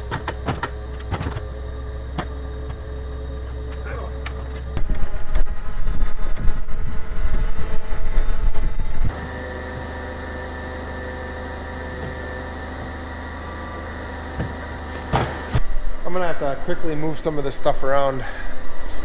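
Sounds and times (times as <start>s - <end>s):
forklift engine running: 0.0s - 17.5s
steady idling hum: 0.0s - 19.0s
wind buffeting microphone: 4.8s - 9.1s.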